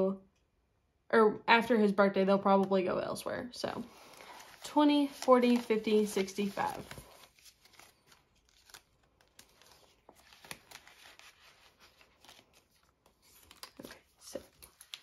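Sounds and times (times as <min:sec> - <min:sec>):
bills sliding into plastic pockets: 0:03.9 - 0:15.0
paper bills rustling: 0:03.9 - 0:15.0.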